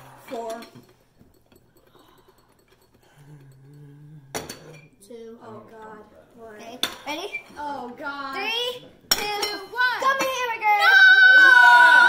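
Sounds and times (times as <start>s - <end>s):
ceramic bowls clinking on saucers: 0.2s - 5.0s, 9.1s - 10.5s.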